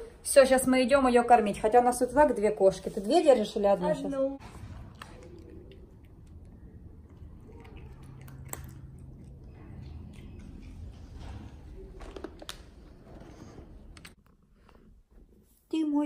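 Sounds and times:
cat crunching dry kibble: 4.8s - 10.7s.

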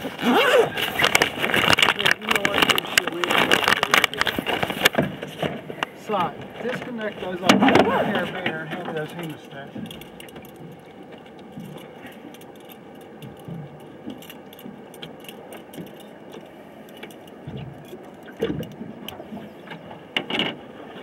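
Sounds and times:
fishing gear clicking and rattling: 0.0s - 20.6s
knocks in a boat: 4.3s - 11.8s, 17.4s - 20.6s.

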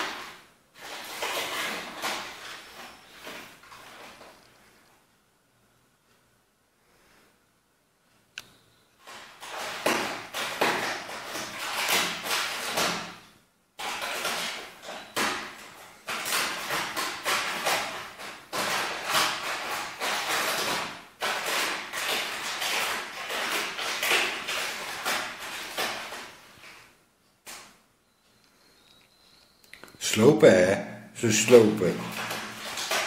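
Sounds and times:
cat crinkling paper bag: 0.0s - 4.8s, 9.0s - 13.2s, 13.8s - 27.0s, 31.3s - 33.0s.

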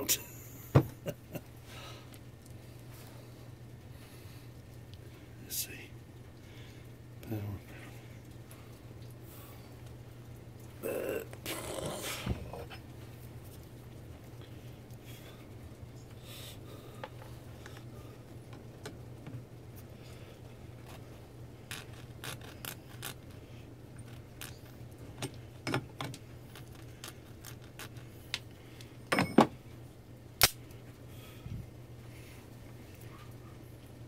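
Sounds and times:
metallic clicks on wires: 30.4s - 30.7s.

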